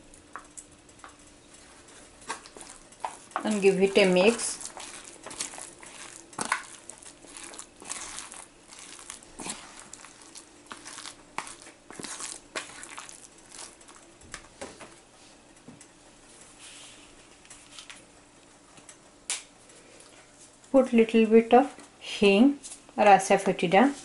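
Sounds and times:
spoon scraping plastic tub: 0:02.2 - 0:14.0.

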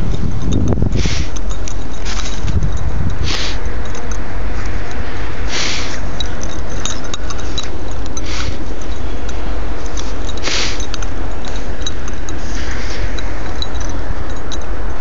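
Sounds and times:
wind buffeting microphone: 0:00.0 - 0:15.0
short hissing bursts: 0:01.0 - 0:01.4, 0:03.2 - 0:03.6, 0:05.4 - 0:06.1, 0:08.2 - 0:08.6, 0:10.4 - 0:10.9.

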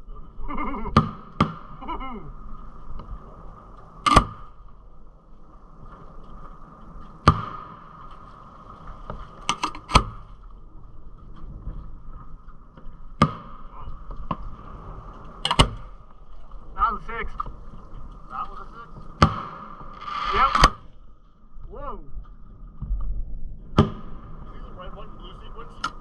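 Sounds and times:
fireworks bangs: 0:19.2 - 0:20.9.

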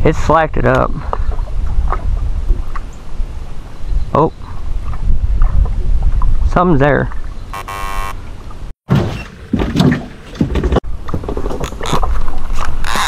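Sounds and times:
wind rumble on microphone: 0:00.0 - 0:07.5
brief buzz: 0:07.6 - 0:08.2
handling knocks and thuds: 0:08.9 - 0:11.7.

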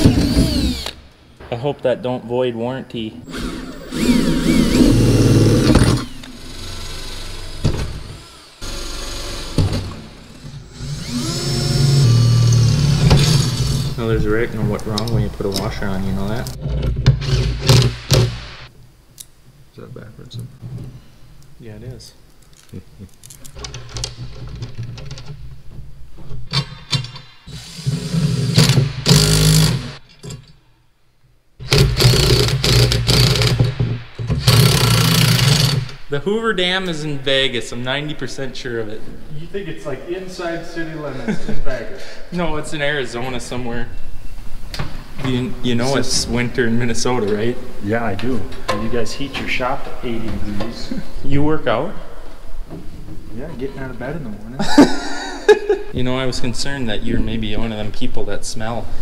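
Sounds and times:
cordless drill boring through steel: 0:00.0 - 0:01.0, 0:03.3 - 0:09.6, 0:10.2 - 0:14.0, 0:27.5 - 0:30.0
impact wrench driving bolts: 0:31.6 - 0:36.0
sharp knocks: 0:31.6 - 0:36.0.

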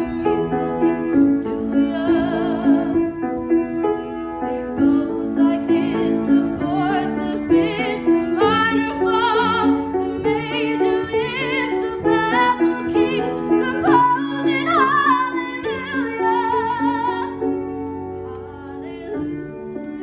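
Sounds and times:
woman singing with vibrato: 0:01.5 - 0:03.0, 0:04.8 - 0:17.4.

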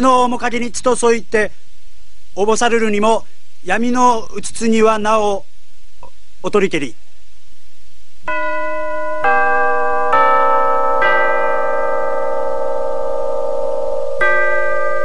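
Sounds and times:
school bell chime: 0:08.3 - 0:15.0.

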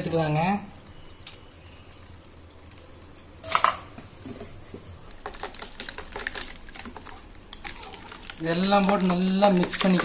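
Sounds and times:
spoon stirring ice cubes: 0:05.1 - 0:10.0.

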